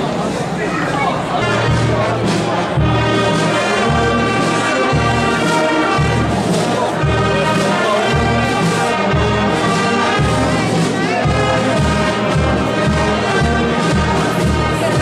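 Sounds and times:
brass band playing a march: 0.0s - 15.0s.

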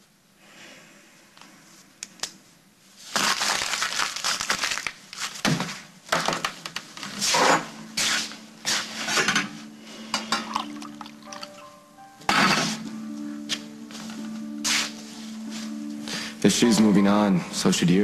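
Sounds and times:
paper crumpling: 3.0s - 5.9s.

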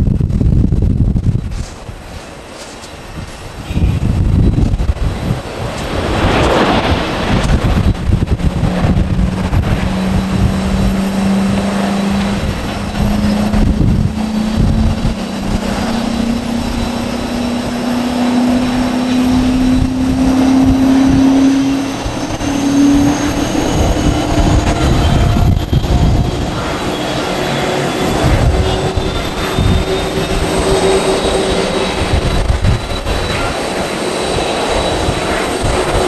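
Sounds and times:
low rumble: 0.0s - 2.2s, 3.2s - 36.0s
high engine whines: 0.0s - 36.0s
jet engines spooling up: 0.0s - 36.0s.

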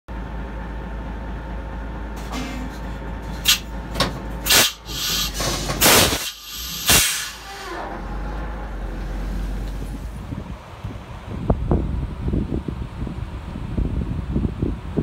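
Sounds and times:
low engine rumble: 0.1s - 15.0s
air brake hissing: 3.4s - 3.7s, 4.4s - 8.0s.

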